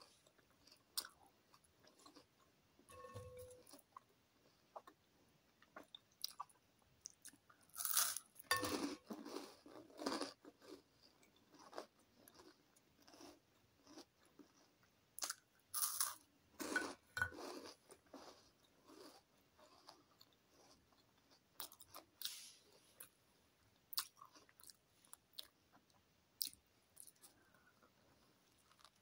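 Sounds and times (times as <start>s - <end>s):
crunching of crisp snack: 5.7s - 23.2s, 23.9s - 27.4s, 28.5s - 29.0s
quiet chewing: 8.6s - 15.4s, 23.9s - 29.0s.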